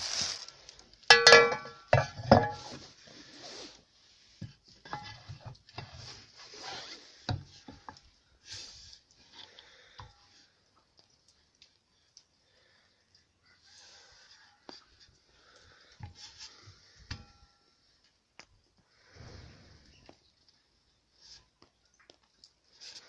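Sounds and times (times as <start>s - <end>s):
metallic clang of shovel: 1.1s - 2.8s
tools knocking and clattering: 1.1s - 2.8s.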